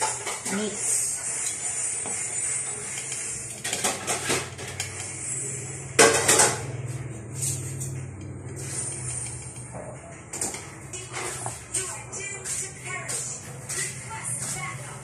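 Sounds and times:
pots and cutlery clattering: 0:03.6 - 0:04.9, 0:06.0 - 0:06.7.

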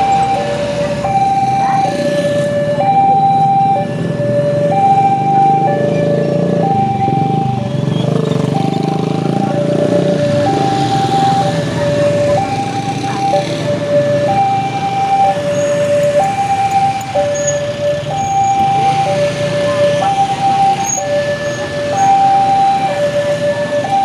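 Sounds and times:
car and motorbike engines: 0:00.0 - 0:24.0
two-tone level crossing alarm: 0:00.0 - 0:24.0.

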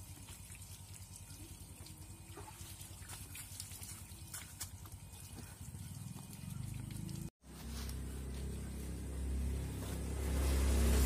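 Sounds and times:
water splashing and dripping: 0:00.0 - 0:07.3.

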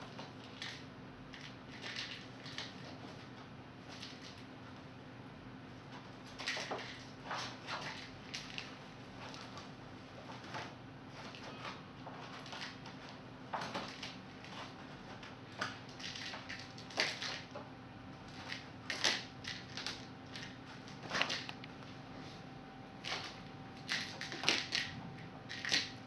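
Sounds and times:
kitten crinkling paper: 0:00.2 - 0:03.3, 0:10.3 - 0:17.6, 0:18.2 - 0:21.6, 0:23.0 - 0:26.0.

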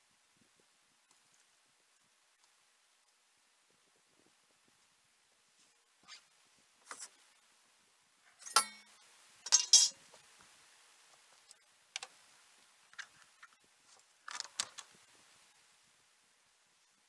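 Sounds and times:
short metallic ring: 0:08.4 - 0:10.0.

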